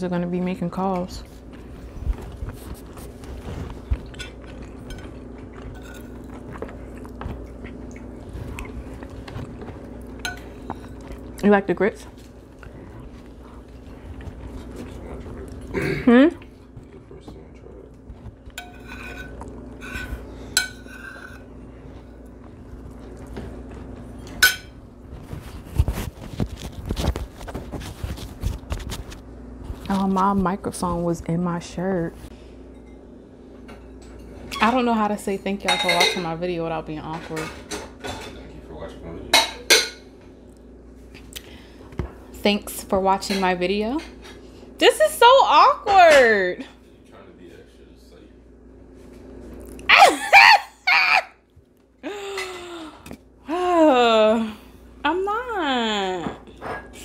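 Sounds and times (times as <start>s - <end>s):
microphone rustling against shirt: 1.8s - 3.9s, 25.1s - 29.2s
mouth chewing: 2.6s - 10.2s
metal spoon scraping ceramic plate: 18.6s - 21.5s.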